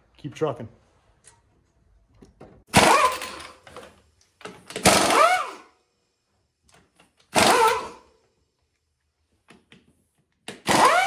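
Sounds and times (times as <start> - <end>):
pneumatic impact wrench whine: 2.7 - 3.9, 4.5 - 5.8, 7.2 - 8.2, 10.5 - 11.0.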